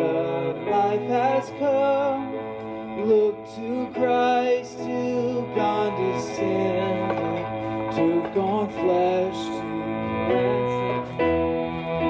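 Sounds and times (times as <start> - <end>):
worship song with instruments: 0.0 - 12.0.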